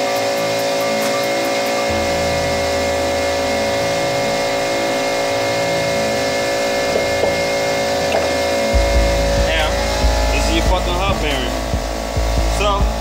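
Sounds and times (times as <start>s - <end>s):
air compressor humming: 0.0s - 13.0s.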